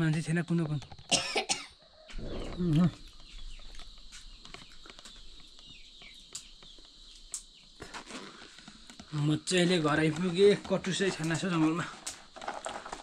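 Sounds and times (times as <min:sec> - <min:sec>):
high insect drone: 0:00.0 - 0:13.0
bird chirps: 0:01.9 - 0:07.8.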